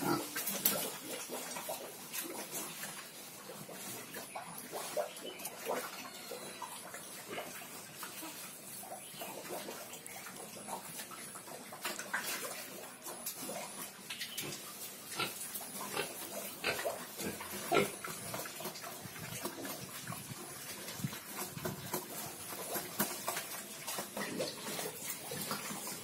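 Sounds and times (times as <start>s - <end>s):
pigs grunting: 0.0s - 2.8s, 14.4s - 19.9s.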